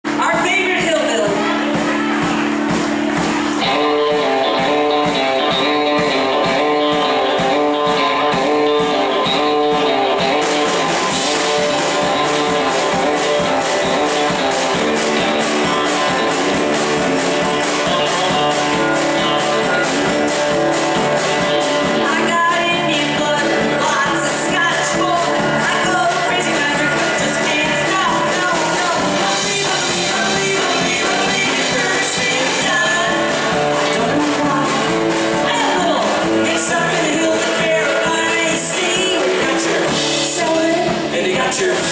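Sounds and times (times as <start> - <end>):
band playing country-rock: 0.0 - 41.9
woman singing: 21.8 - 41.9.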